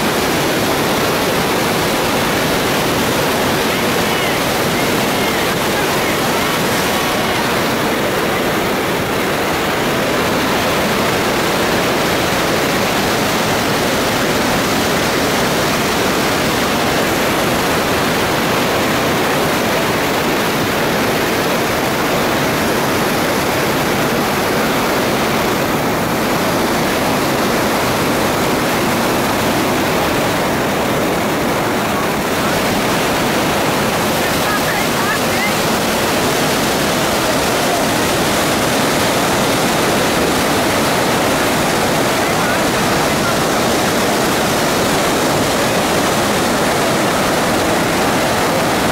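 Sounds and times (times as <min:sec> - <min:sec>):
waterfall rushing: 0:00.0 - 0:48.9.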